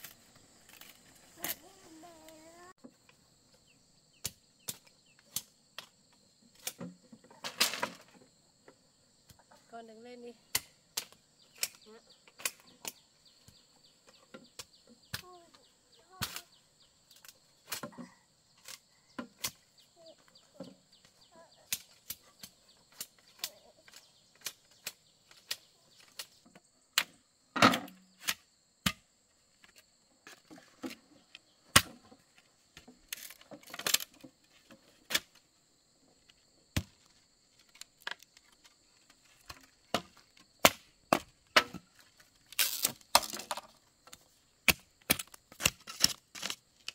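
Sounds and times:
bamboo being chopped: 10.5s - 13.6s, 16.0s - 16.5s, 27.0s - 29.1s, 31.7s - 32.2s, 36.7s - 37.0s, 39.4s - 46.9s.

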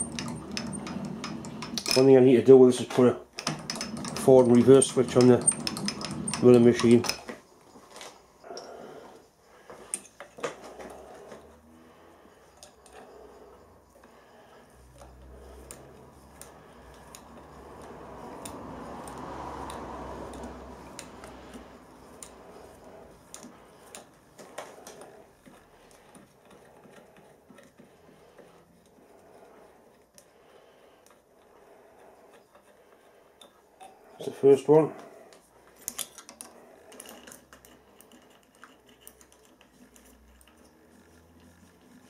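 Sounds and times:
metal tools clicking and clinking: 0.0s - 2.2s, 2.9s - 7.3s, 35.7s - 40.1s.

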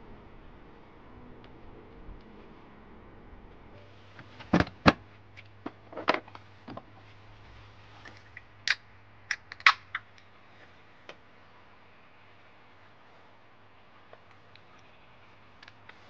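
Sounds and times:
drink can cracked open: 8.7s - 10.1s.

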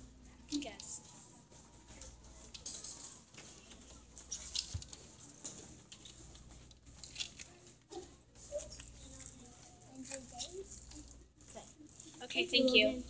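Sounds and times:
faint rustling and crackling: 0.0s - 13.0s.

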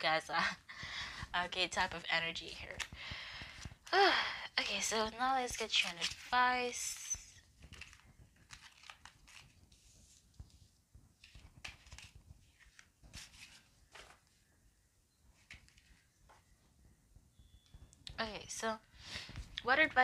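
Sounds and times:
cards being shuffled: 5.5s - 6.3s, 6.9s - 14.2s.

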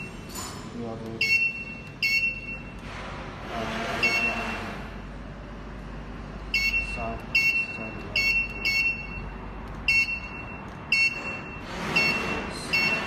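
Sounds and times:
high-pitched electronic beeps: 6.5s - 13.0s.

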